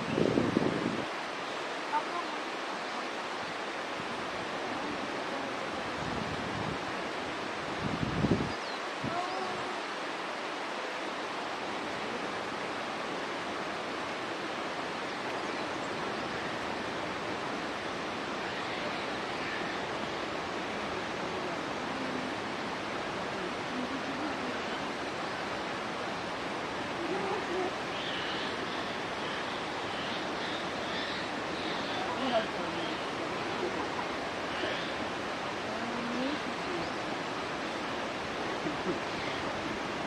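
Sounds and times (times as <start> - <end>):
flowing water rushing: 0.0 - 40.0
faint high calls: 18.3 - 20.2.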